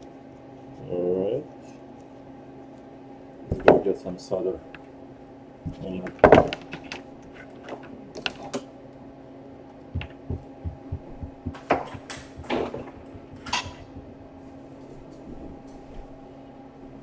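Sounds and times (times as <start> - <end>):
steady low hum: 0.0 - 17.0
low thumps: 5.6 - 6.4, 9.9 - 15.6
clicks and knocks on workbench: 10.0 - 14.2.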